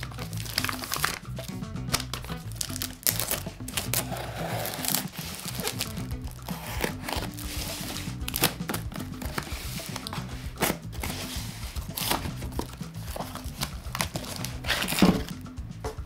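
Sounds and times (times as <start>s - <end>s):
background music: 0.0s - 16.0s
sharp handling noise: 0.0s - 16.0s
plastic wrap crinkling: 1.9s - 10.1s
cardboard flaps rustling: 1.9s - 15.4s.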